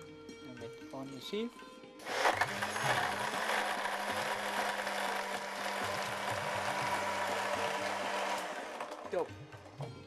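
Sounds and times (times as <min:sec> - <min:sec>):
electric blender running: 0:02.0 - 0:09.3.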